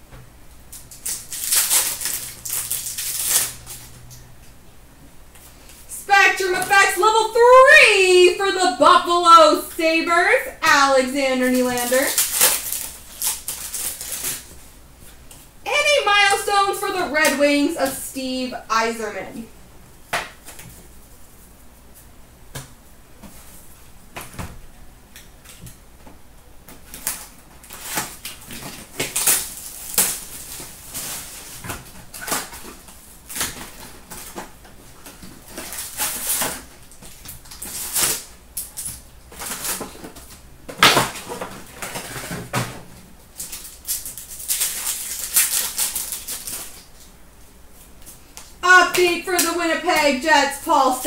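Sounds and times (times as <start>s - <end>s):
wrappers crinkling: 0.7s - 4.1s, 11.4s - 15.3s, 26.8s - 42.4s, 43.3s - 47.2s.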